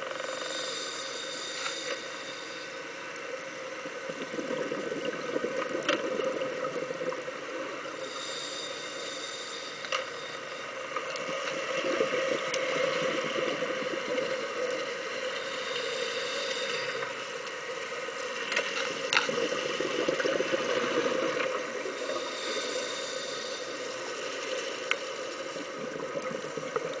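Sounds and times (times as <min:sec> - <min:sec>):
exhaled bubbles rushing: 0:04.1 - 0:07.3, 0:11.7 - 0:14.5, 0:19.1 - 0:21.7
scuba regulator inhale hiss: 0:15.4 - 0:17.2, 0:22.0 - 0:24.0.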